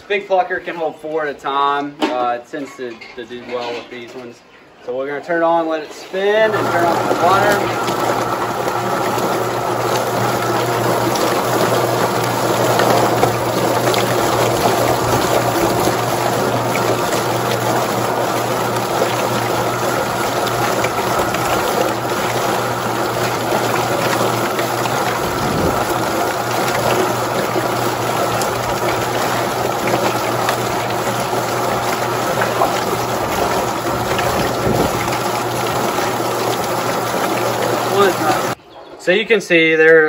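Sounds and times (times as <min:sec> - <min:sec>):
motor hum: 0:06.2 - 0:38.6
water spraying and splashing: 0:06.3 - 0:38.6.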